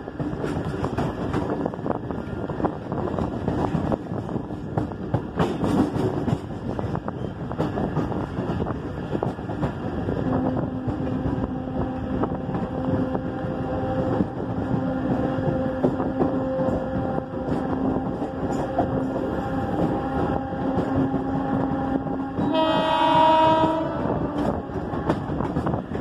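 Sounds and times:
electric train running: 0.0 - 26.0
train horn: 10.2 - 25.6.

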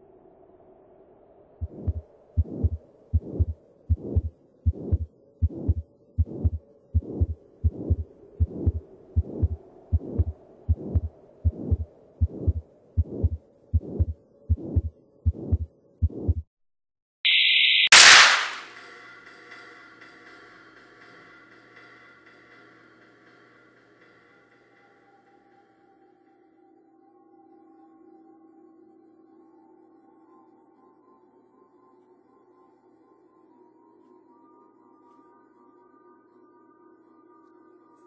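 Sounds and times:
faint low hum: 1.6 - 16.4
heartbeat pulse: 1.6 - 16.5.

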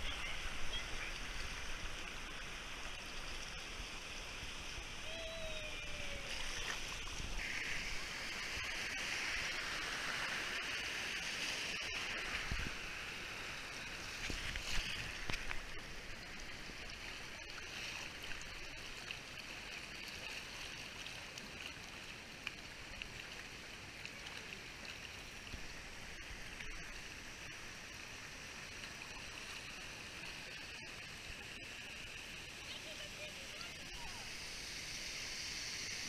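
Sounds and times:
creek rushing over rapids: 0.0 - 28.3
water splashes: 0.0 - 36.0.

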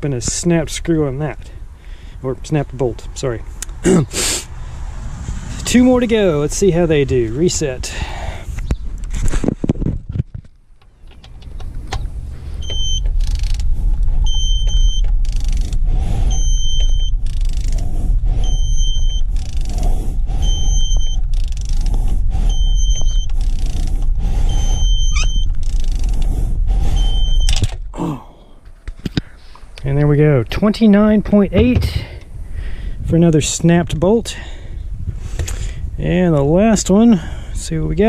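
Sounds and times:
low rumble: 2.9 - 9.1, 11.6 - 29.0
torque wrench beeping: 14.2 - 17.8, 18.4 - 19.8, 20.4 - 21.9, 22.5 - 26.2, 26.9 - 27.6.

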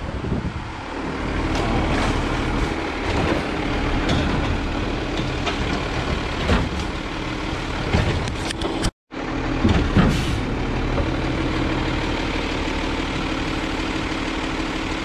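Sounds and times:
garbage truck running: 0.0 - 15.0
clatter and knocks of arm and cart: 7.9 - 8.9.

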